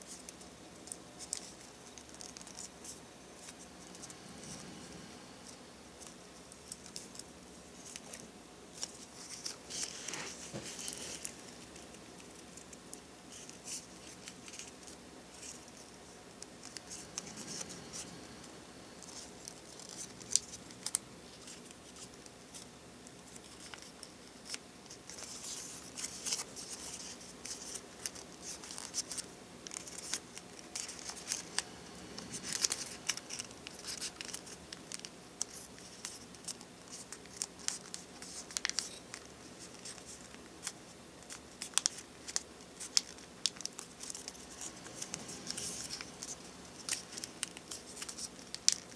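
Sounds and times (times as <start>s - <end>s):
paper crinkling and rustling: 5.4s - 48.9s.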